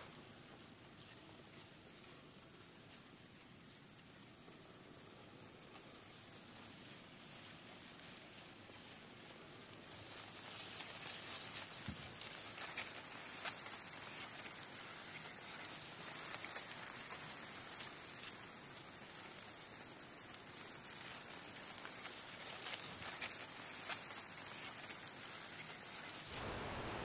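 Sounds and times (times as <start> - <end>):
high-pitched crackling patter: 0.0 - 27.0.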